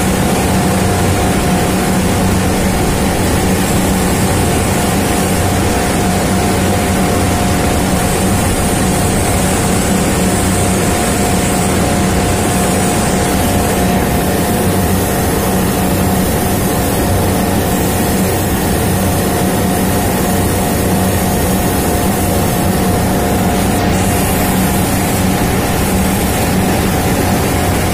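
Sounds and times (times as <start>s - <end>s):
low motor hum: 0.0s - 27.9s.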